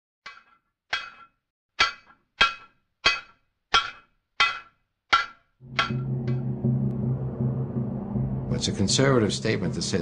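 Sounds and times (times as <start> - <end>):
hammer striking anvil: 0.3 - 8.3
low droning hum: 5.6 - 10.0.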